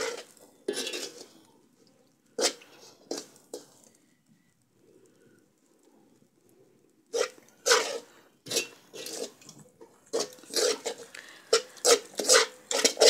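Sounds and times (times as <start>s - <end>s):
metal spoon scraping metal pan: 0.0s - 1.4s, 2.4s - 3.8s, 7.1s - 13.0s.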